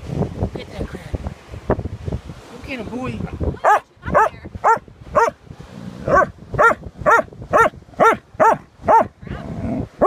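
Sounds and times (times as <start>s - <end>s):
dog barking: 3.6s - 5.4s, 6.1s - 9.1s.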